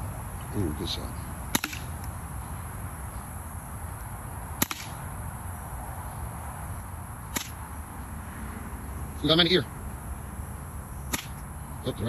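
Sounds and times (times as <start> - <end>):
bb pistol cracks: 1.5 - 2.1, 4.6 - 5.0, 7.3 - 7.6, 11.1 - 11.4.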